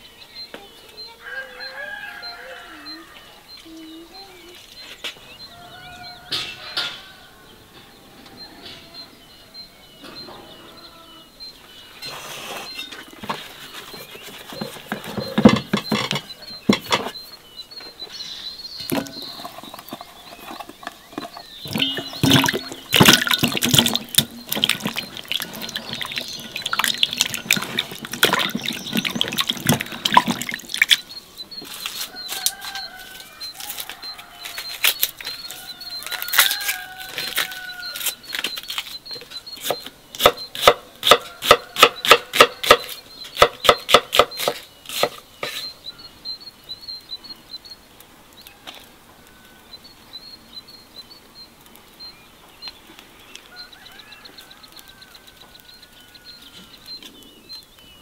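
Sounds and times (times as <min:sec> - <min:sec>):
small bird chirping: 0:00.0 - 0:58.0
water splashing in a basin: 0:21.1 - 0:31.1
knife on a wooden board: 0:39.6 - 0:45.6.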